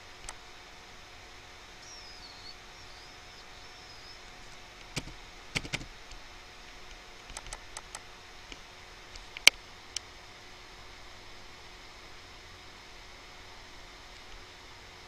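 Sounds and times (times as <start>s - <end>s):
faint steady hum: 0.0s - 15.0s
computer mouse clicking: 4.8s - 5.9s, 7.2s - 8.0s.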